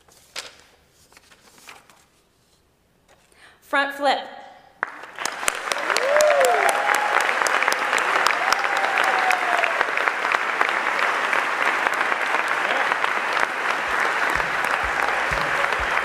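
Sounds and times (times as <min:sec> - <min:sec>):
audience applauding: 0:04.8 - 0:16.0
person whooping: 0:05.8 - 0:07.3, 0:08.3 - 0:09.9, 0:14.1 - 0:16.0.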